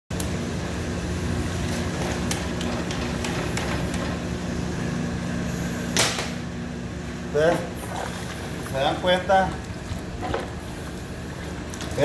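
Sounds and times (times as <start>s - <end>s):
kitchen equipment hum: 0.1s - 12.0s
water splashing: 7.7s - 12.0s.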